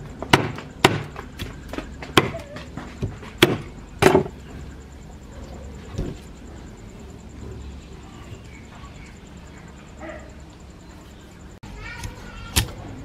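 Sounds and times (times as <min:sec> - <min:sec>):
cleaver chopping on wooden board: 0:00.2 - 0:04.3.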